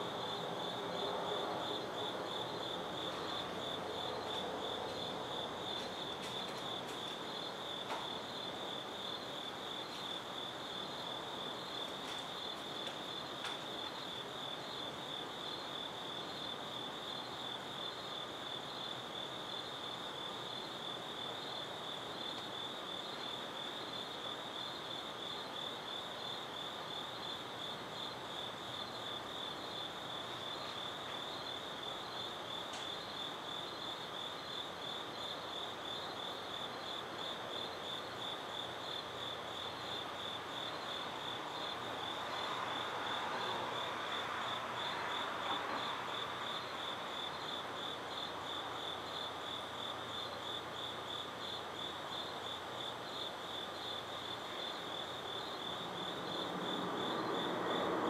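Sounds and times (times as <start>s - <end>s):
background hiss: 0.0s - 58.0s
crickets chirping: 0.0s - 58.0s.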